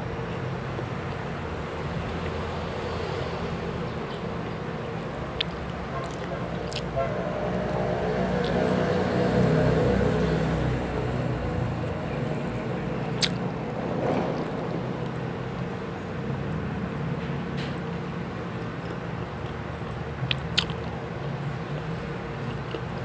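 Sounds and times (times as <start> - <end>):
biting and chewing: 3.8 - 7.0, 7.6 - 8.9, 13.1 - 15.2, 18.5 - 23.0
sharp wet click: 13.2 - 13.5, 20.3 - 20.9.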